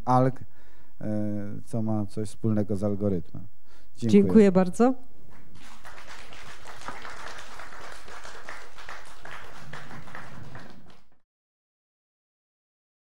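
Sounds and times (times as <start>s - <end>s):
audience applauding: 5.4s - 11.2s.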